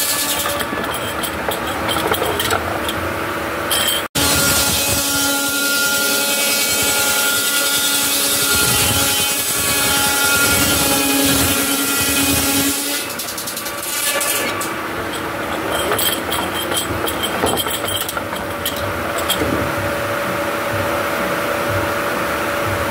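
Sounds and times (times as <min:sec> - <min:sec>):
circular saw ripping wood: 0:07.4 - 0:17.5.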